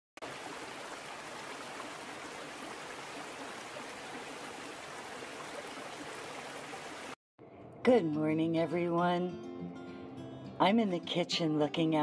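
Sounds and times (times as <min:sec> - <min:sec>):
stream rushing over boulders: 0:00.2 - 0:07.2.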